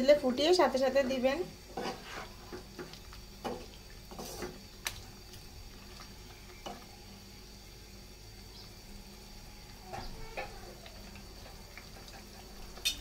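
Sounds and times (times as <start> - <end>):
wooden spatula scraping pan: 1.7 - 2.9, 3.5 - 4.6.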